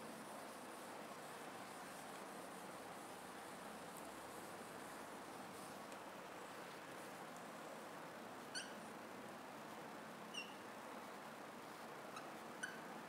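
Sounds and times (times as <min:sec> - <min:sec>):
faint room hiss: 0:00.0 - 0:13.0
marker squeaking on whiteboard: 0:10.3 - 0:10.6, 0:12.1 - 0:12.9.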